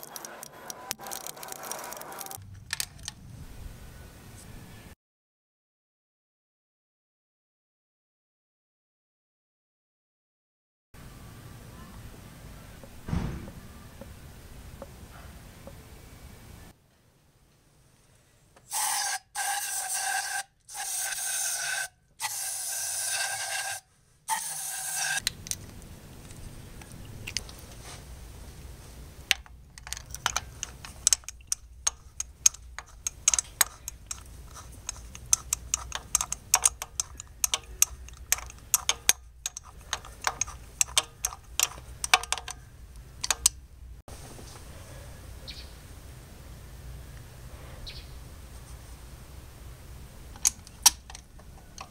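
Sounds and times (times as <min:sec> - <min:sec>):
ratchet clicking: 0:00.0 - 0:03.1, 0:29.3 - 0:43.6
aerosol can spraying: 0:18.7 - 0:25.2.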